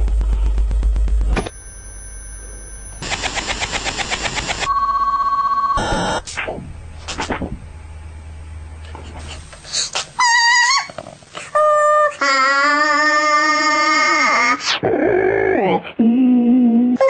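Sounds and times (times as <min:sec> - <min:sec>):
heavy low buzz: 0:00.0 - 0:10.2
steady electronic tones: 0:01.0 - 0:08.7
pulsing beep: 0:01.4 - 0:06.3
fast rattling pulse: 0:02.8 - 0:04.7.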